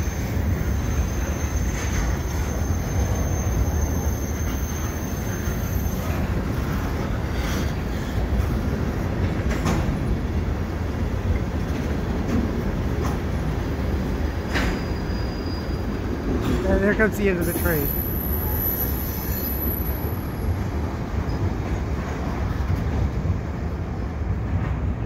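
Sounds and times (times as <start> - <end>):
high wheel squeal: 0.0 - 8.2, 14.5 - 16.1, 17.4 - 20.6
train rumbling over bridge: 0.0 - 25.0
wheels clanking over rail joints: 4.3 - 19.0.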